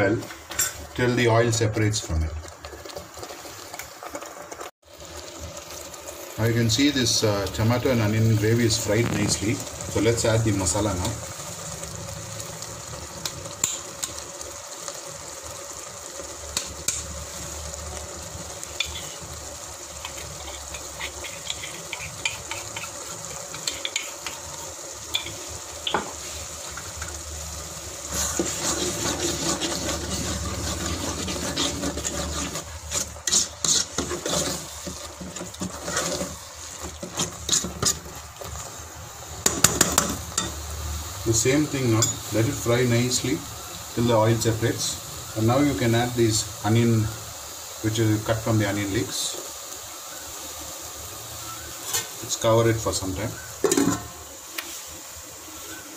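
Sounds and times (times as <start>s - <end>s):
gravy sizzling in metal pot: 0.0s - 55.9s
metal spoon scraping pot: 20.0s - 24.4s, 28.1s - 38.1s.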